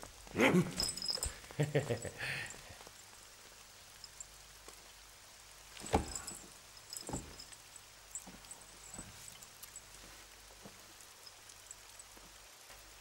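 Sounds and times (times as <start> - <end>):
faint room hiss: 0.0 - 13.0
soft knocks and scuffs: 5.8 - 7.5.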